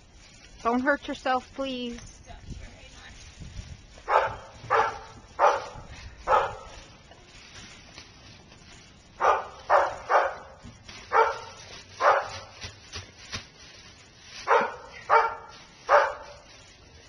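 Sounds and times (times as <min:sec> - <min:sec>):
dog barking: 0:04.1 - 0:06.7, 0:09.2 - 0:12.5, 0:14.4 - 0:16.4.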